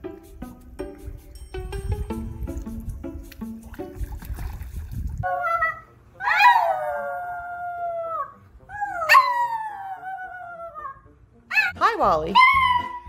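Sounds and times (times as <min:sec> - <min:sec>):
dog howling: 0:05.2 - 0:11.8, 0:12.4 - 0:13.0.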